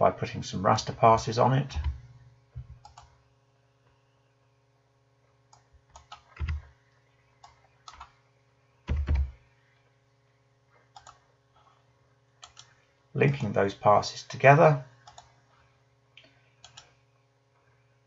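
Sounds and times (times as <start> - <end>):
faint electrical hum: 0.0 - 18.0
keyboard keystrokes: 5.9 - 6.6, 8.9 - 9.4
mouse clicks: 15.0 - 15.3, 16.2 - 16.9.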